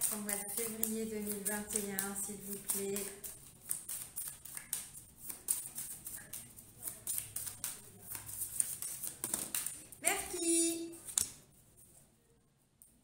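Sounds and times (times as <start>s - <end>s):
cards being shuffled: 0.0s - 10.0s.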